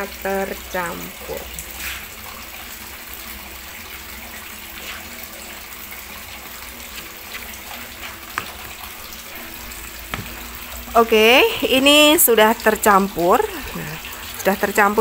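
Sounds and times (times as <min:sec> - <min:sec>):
spatula scraping plastic bowl: 0:06.8 - 0:10.4.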